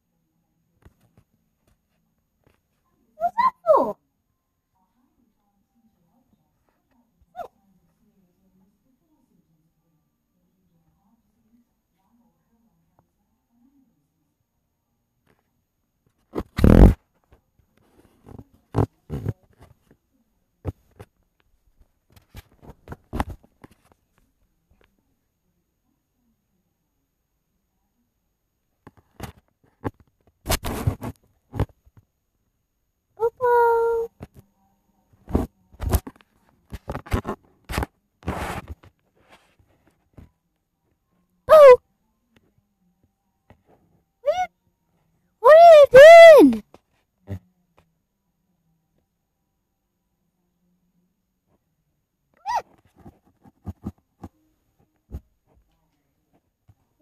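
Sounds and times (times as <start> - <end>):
phone rustling and scraping on carpet: 30.5 - 31.8, 35.3 - 39.8.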